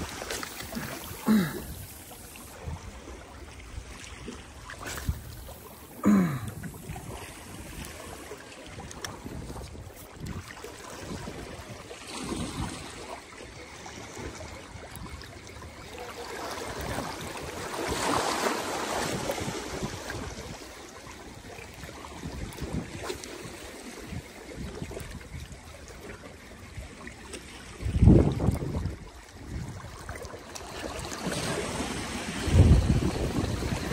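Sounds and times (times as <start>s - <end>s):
sea water lapping: 0.0s - 33.9s
wind on microphone: 8.7s - 12.8s, 27.8s - 30.0s, 31.2s - 33.9s.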